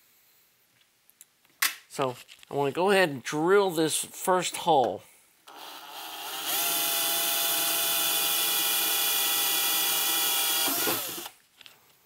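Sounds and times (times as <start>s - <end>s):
cordless drill whining through metal: 5.5s - 11.4s.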